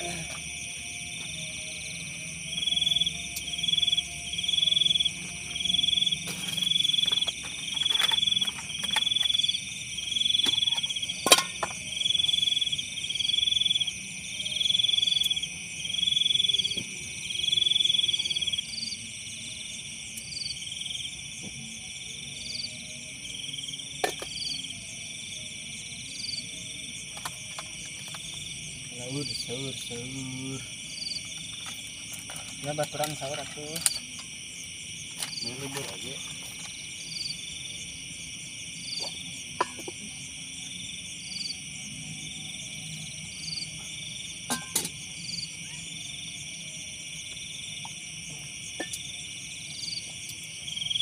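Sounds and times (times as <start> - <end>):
insects ringing: 0.0 - 51.0.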